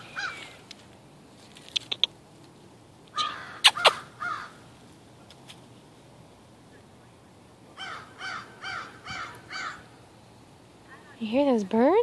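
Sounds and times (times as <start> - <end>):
crows cawing: 0.0 - 0.6, 3.1 - 4.6, 7.8 - 10.0
sharp clicks and rustles: 0.6 - 2.6.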